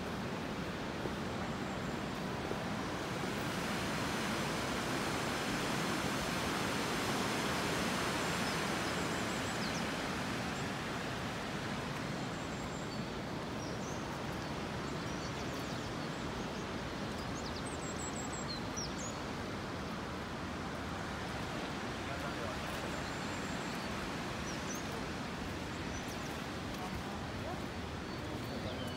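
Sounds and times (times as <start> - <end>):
river water rushing: 0.0 - 28.9
small birds chirping: 22.3 - 28.9.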